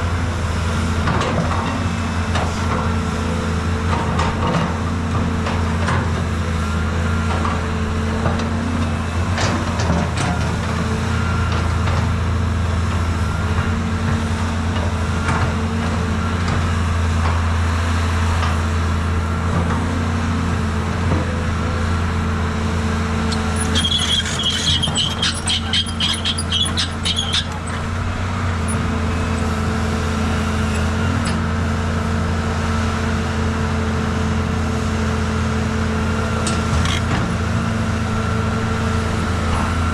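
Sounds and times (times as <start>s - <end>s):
excavator diesel engine running: 0.0s - 39.9s
rapid clicking with high squeal: 23.3s - 27.9s, 36.8s - 37.1s.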